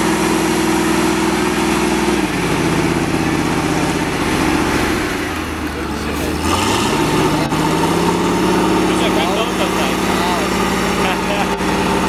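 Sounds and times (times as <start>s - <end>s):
wheel loader diesel engine: 0.0s - 12.0s.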